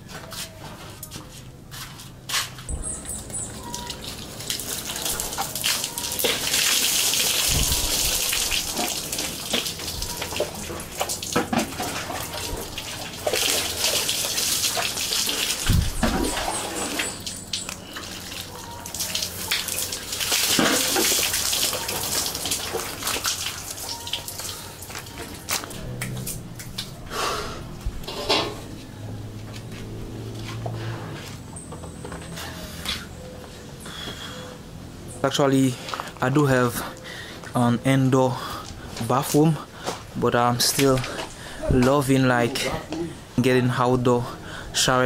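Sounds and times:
shower water pouring and splashing: 0:03.6 - 0:26.4.

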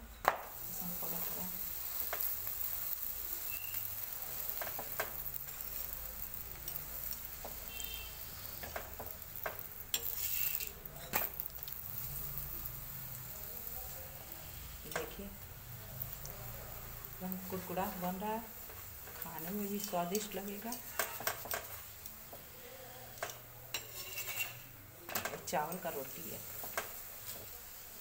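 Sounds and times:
flatbread sizzling in oil: 0:00.2 - 0:28.0
metal spatula scraping pan: 0:07.4 - 0:11.2, 0:23.7 - 0:24.7.

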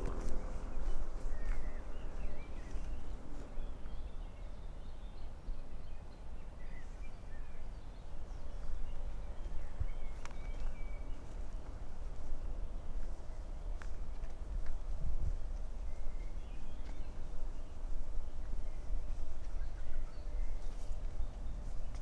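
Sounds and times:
steady low rumble: 0:00.0 - 0:04.5
birds chirping: 0:00.0 - 0:22.0.

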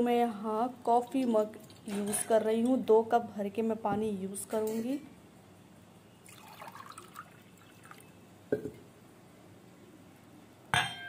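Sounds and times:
water dripping into a pot: 0:06.2 - 0:08.2.

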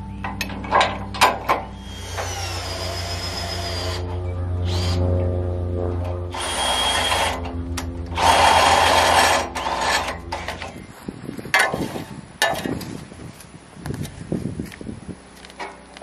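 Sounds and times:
small engine humming: 0:01.4 - 0:11.0.

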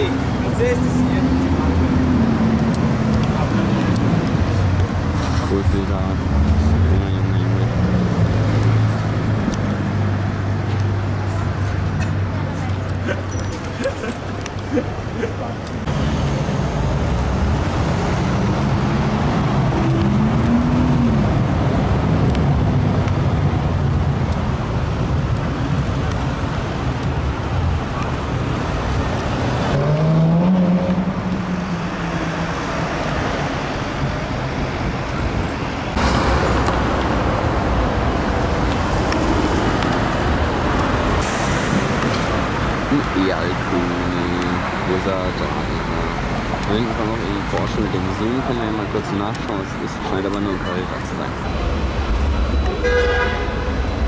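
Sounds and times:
cars driving past: 0:00.0 - 0:54.0
car engine accelerating: 0:28.6 - 0:33.5.

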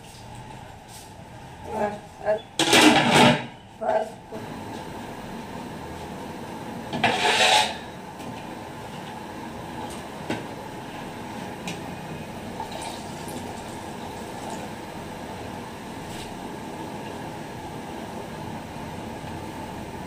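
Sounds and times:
metal pot lid scraping: 0:07.0 - 0:07.9.

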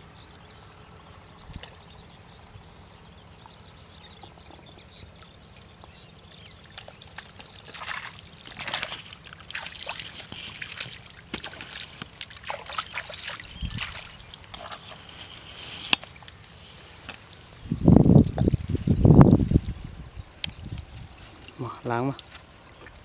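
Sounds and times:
hands splashing in muddy water: 0:06.7 - 0:17.5.

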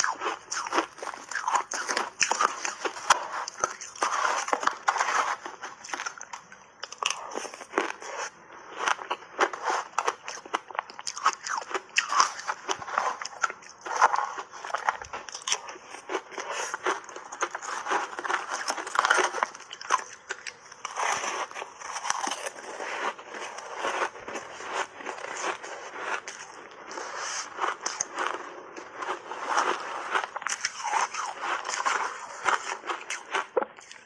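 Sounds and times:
ice block being chewed: 0:00.0 - 0:34.0
metal spoon scraping ice: 0:29.0 - 0:33.2.

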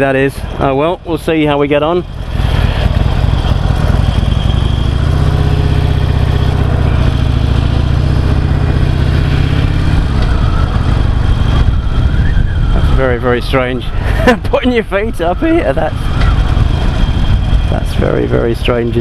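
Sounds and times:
motorcycle engine pulling away: 0:02.0 - 0:13.0.

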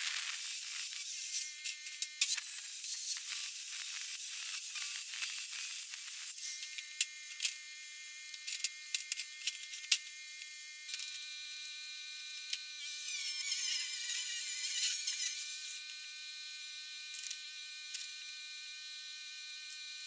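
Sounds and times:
circular saw cutting steel: 0:00.0 - 0:07.5, 0:12.8 - 0:15.8
angle grinder running: 0:00.0 - 0:07.6.

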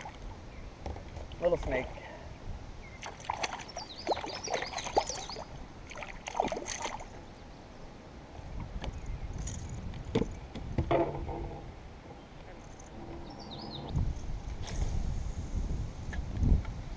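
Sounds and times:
fish splashing in water: 0:03.0 - 0:07.2.

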